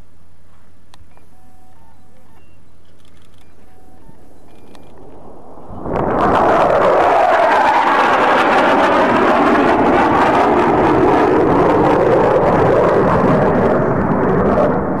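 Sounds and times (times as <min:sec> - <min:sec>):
fighter jet roaring past: 0:04.9 - 0:15.0.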